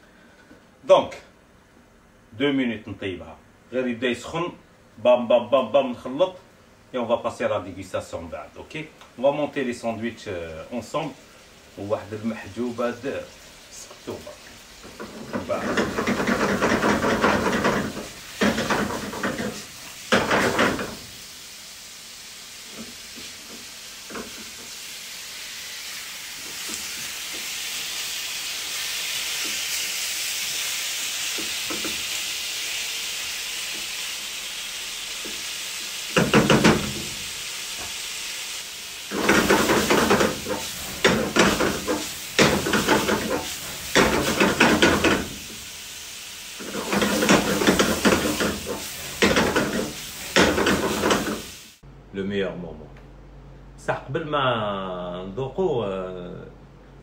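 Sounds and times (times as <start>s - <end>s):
liver sizzling in a pan: 9.1s - 51.8s.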